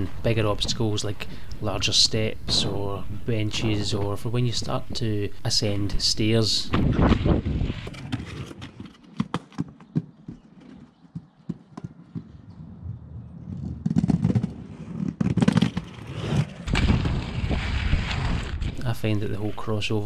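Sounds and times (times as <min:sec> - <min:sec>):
skate wheels rolling on asphalt: 0:06.8 - 0:18.8
skate wheels clacking and knocking: 0:07.8 - 0:12.5, 0:13.4 - 0:16.6.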